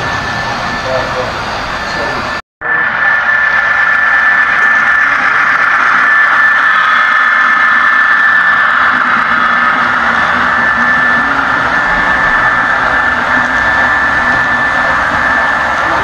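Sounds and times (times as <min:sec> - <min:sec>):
thin high whine: 0:00.0 - 0:16.0.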